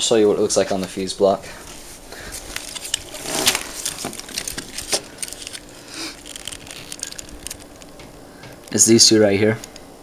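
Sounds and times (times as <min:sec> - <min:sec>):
wiring harness clicks and rustles: 0:01.7 - 0:09.0.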